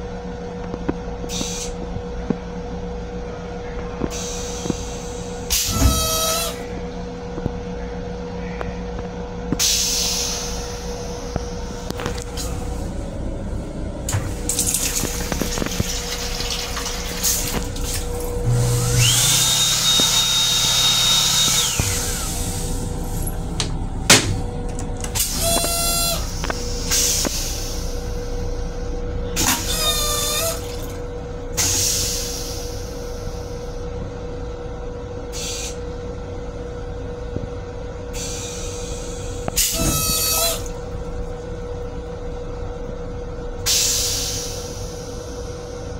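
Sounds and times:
railcar steady hum: 0:00.0 - 0:45.9
toilet flush whine: 0:04.2 - 0:06.7, 0:09.6 - 0:28.5, 0:29.4 - 0:33.7, 0:38.2 - 0:41.4
short high-pitched squeals: 0:05.5 - 0:06.7, 0:25.2 - 0:26.4, 0:29.4 - 0:30.8, 0:38.2 - 0:40.8
low drone: 0:17.8 - 0:29.5
sharp clunk: 0:23.6 - 0:24.5.

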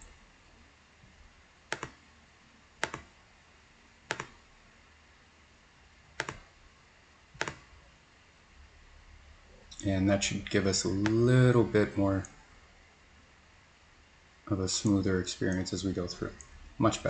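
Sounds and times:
computer mouse button clicks: 0:01.7 - 0:02.0, 0:02.8 - 0:03.1, 0:04.1 - 0:04.4, 0:06.2 - 0:06.4, 0:07.4 - 0:07.6.

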